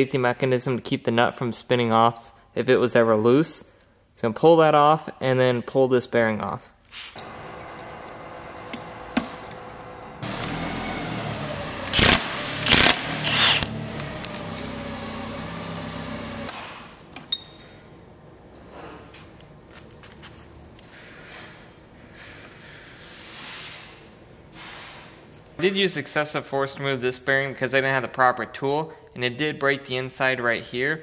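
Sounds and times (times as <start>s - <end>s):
impact wrench hammering: 7.2s - 16.9s.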